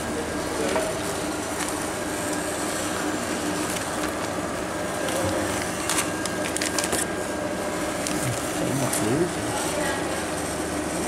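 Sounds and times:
band sealer machine humming: 0.0 - 11.0
plastic bag crinkling: 5.6 - 7.1.

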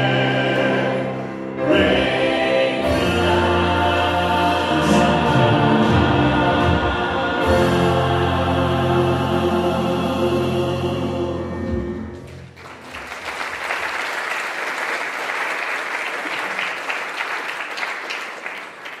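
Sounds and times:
band and choir final chord: 0.0 - 12.3
audience applauding: 12.3 - 19.0.

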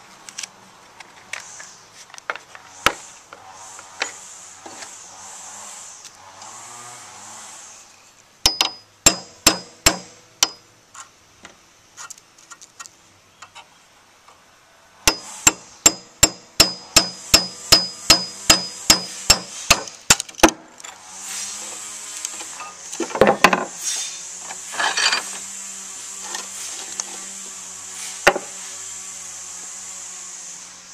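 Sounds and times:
hammer tapping metal punch: 8.4 - 10.6, 15.1 - 20.6.

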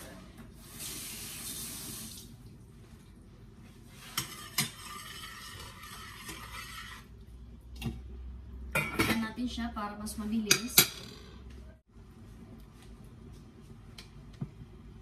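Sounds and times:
spoon scraping and stirring: 3.8 - 7.2.

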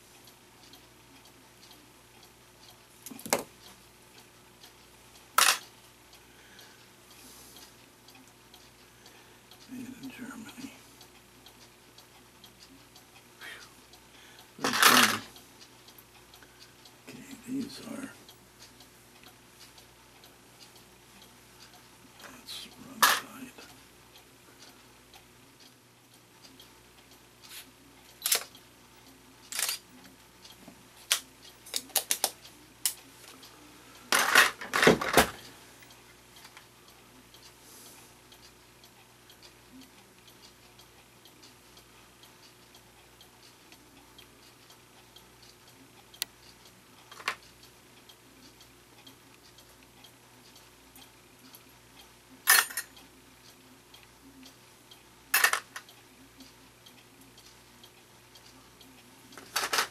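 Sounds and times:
small metal parts clicking: 28.2 - 28.6, 29.5 - 29.8, 52.5 - 52.9, 59.4 - 59.9.

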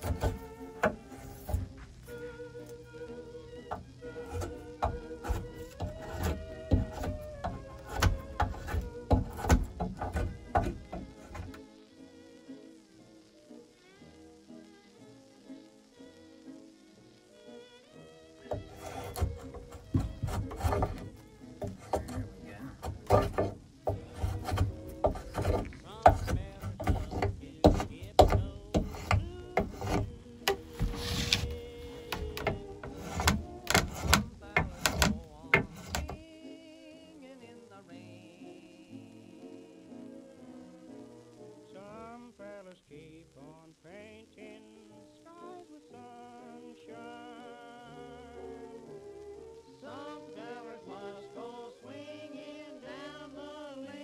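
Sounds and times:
spokeshave cutting wood: 0.0 - 11.6, 18.4 - 36.2.

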